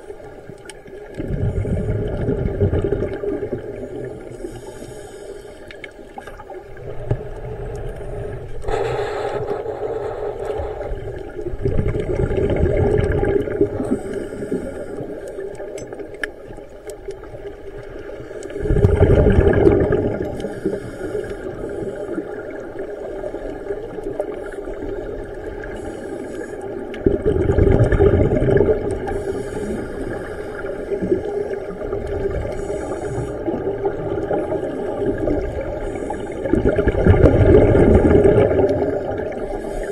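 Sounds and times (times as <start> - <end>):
exhaled bubbles rumbling: 0.0 - 4.5, 5.9 - 25.9, 26.6 - 39.9
diver breathing through regulator: 3.8 - 6.1, 7.1 - 11.6, 13.7 - 15.6, 18.4 - 22.6, 25.6 - 27.1, 29.0 - 39.9.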